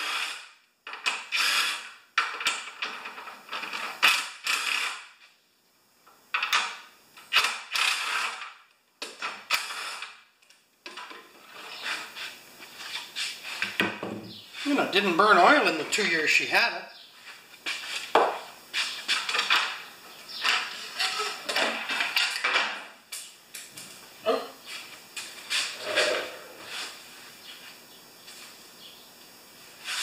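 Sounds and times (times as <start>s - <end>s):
cordless drill running in bursts: 1.3s - 1.9s.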